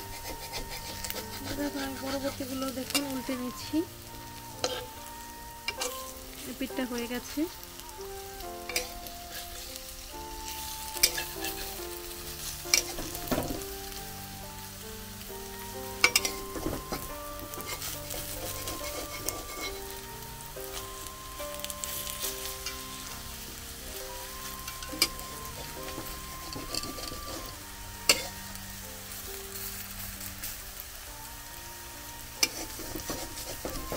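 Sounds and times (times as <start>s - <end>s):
metal spatula scraping pan: 0.0s - 3.7s, 4.6s - 4.9s, 5.7s - 6.2s, 10.9s - 13.7s, 16.0s - 20.0s, 24.6s - 28.4s, 32.4s - 33.9s
background music: 0.0s - 33.9s
fritters sizzling in oil: 0.0s - 33.9s.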